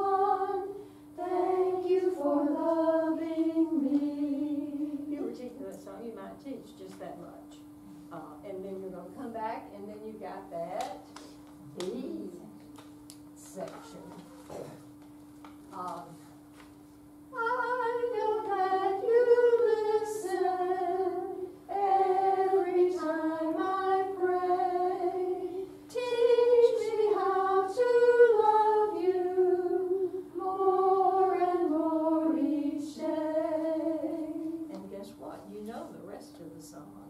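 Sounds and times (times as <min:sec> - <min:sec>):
woman singing unaccompanied: 0:17.3 - 0:35.5.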